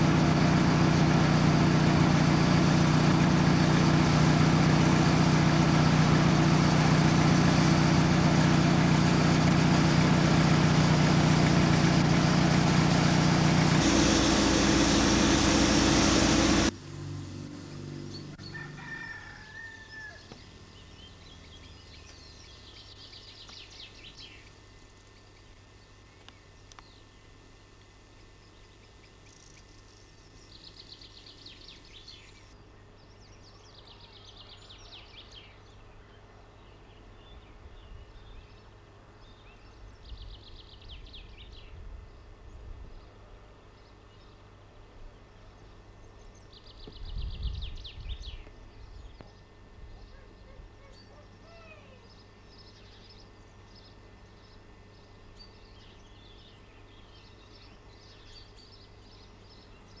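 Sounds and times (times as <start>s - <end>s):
steady low hum: 0.0s - 18.5s.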